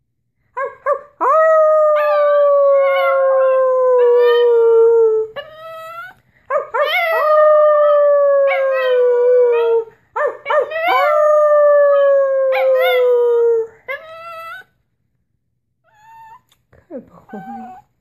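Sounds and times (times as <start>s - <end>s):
small dog howling: 0.6s - 14.7s.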